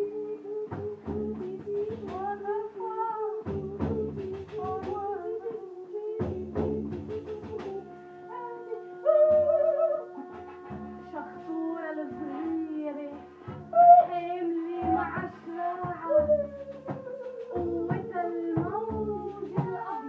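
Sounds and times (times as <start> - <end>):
wavering singing voice: 0.0 - 20.0.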